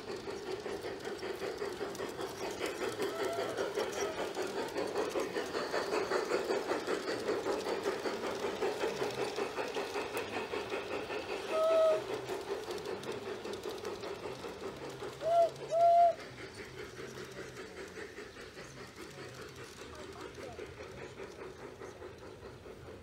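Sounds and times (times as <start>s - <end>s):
model steam locomotive chuffing: 0.0s - 23.0s
locomotive whistle toots: 11.5s - 12.1s, 15.2s - 16.2s.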